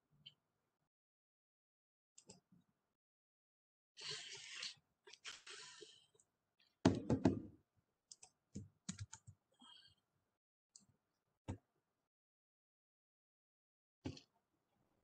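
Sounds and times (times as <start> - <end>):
keyboard typing: 8.1 - 9.4.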